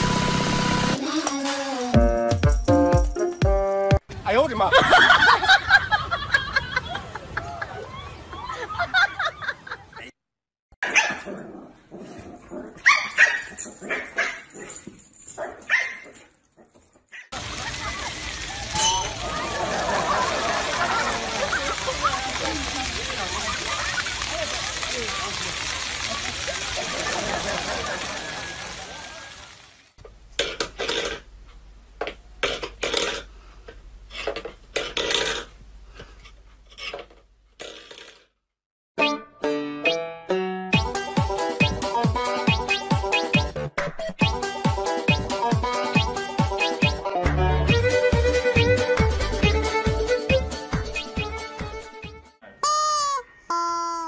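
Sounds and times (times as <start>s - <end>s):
dog barking and yipping: 10.8s - 11.3s, 12.7s - 16.3s
metal bowl scraping on wooden floor: 36.2s - 38.2s
music with plucked notes: 39.0s - 43.6s, 44.2s - 52.2s.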